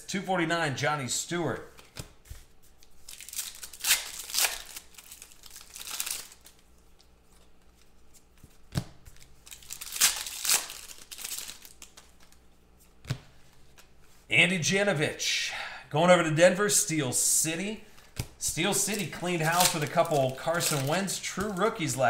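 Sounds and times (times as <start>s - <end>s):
foil wrappers crinkling and tearing: 2.8s - 8.4s, 9.1s - 12.4s, 18.0s - 22.0s.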